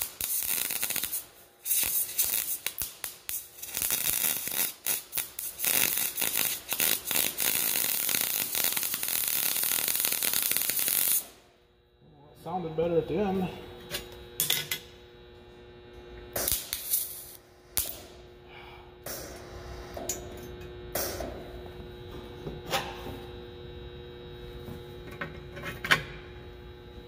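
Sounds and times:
welding crackle and popping: 0:00.0 - 0:11.4, 0:16.4 - 0:18.2
welder humming: 0:00.0 - 0:27.0.

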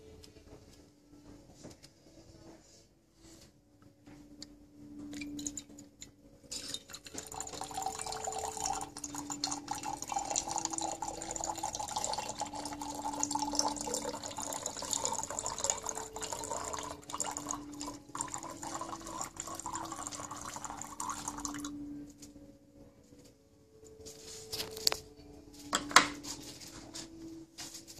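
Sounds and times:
water pouring into glass pitcher: 0:06.5 - 0:21.8.

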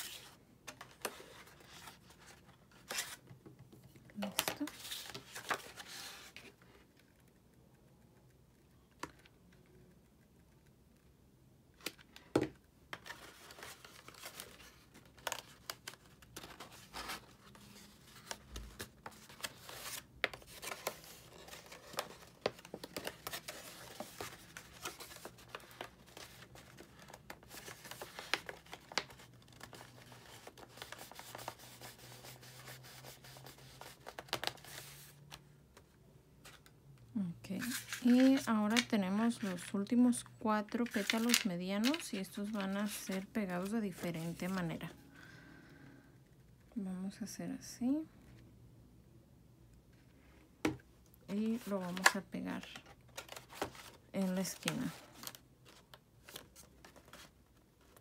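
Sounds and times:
cardstock rustling and crinkling: 0:04.2 - 0:06.6, 0:11.8 - 0:36.7, 0:37.6 - 0:39.8, 0:40.6 - 0:44.9, 0:50.6 - 0:58.0.

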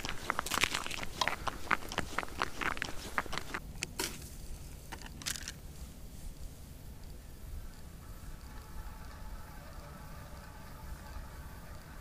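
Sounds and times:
footsteps crunching on ice: 0:00.0 - 0:03.6.

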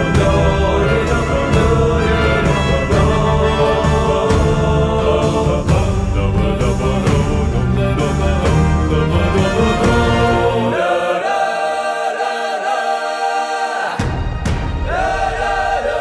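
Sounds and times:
bass and drums: 0:00.0 - 0:10.7
choir-like singing: 0:00.0 - 0:16.0.

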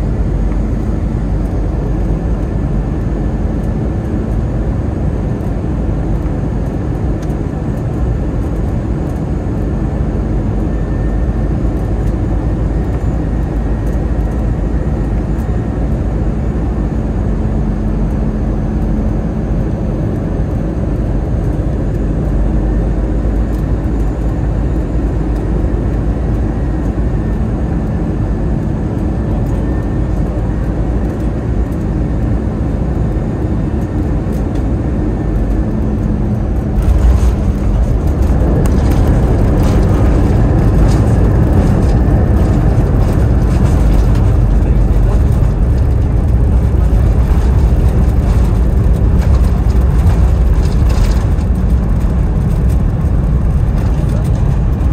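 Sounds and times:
aircraft cabin rumble: 0:00.0 - 0:54.9
wheels touching down on runway: 0:36.8 - 0:54.9.

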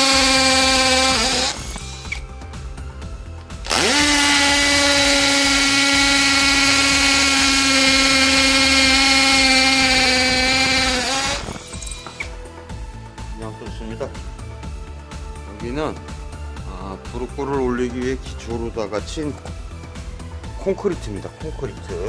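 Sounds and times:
hammer drill drilling into concrete: 0:00.0 - 0:02.3, 0:03.6 - 0:12.4.

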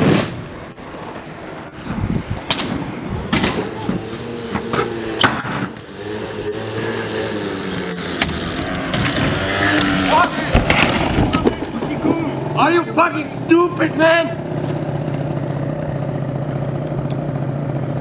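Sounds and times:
scooter engine humming: 0:00.4 - 0:18.0
bike knocking on concrete: 0:08.0 - 0:12.2.

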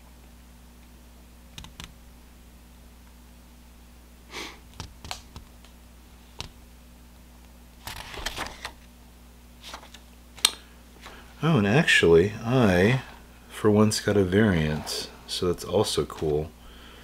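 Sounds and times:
steady low hum: 0:00.0 - 0:17.0
paper sheet rustling: 0:07.9 - 0:08.8, 0:09.6 - 0:10.1.

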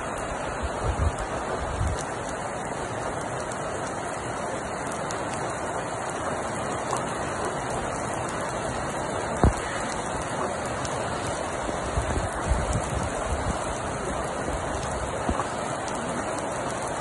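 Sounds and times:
heavy rain pouring: 0:00.0 - 0:17.0.

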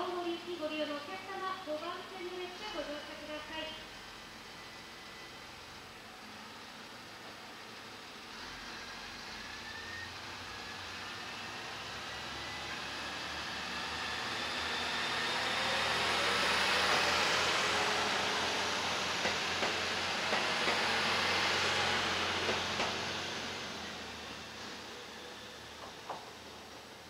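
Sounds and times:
diesel railcar accelerating: 0:00.0 - 0:27.0
wheels clicking on track: 0:08.4 - 0:26.6
whines rising in pitch: 0:08.6 - 0:26.0.

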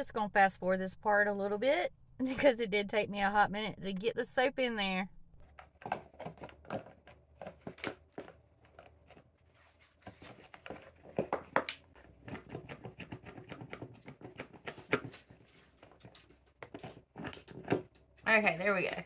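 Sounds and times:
sponge rustling: 0:05.4 - 0:18.5.

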